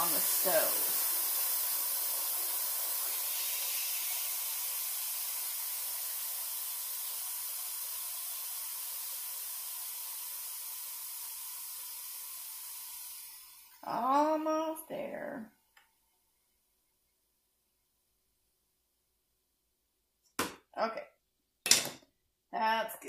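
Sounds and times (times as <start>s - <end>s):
steam hissing from valve: 0.0s - 15.1s.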